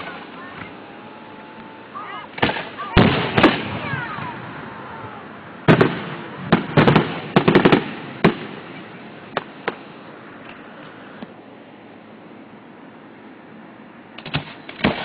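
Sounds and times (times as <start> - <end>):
fireworks exploding: 0.0 - 11.4, 14.2 - 15.0.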